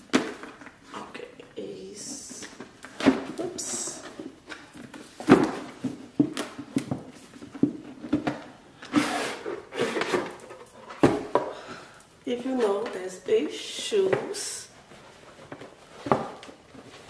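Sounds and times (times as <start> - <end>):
cardboard scraping: 8.9 - 10.4.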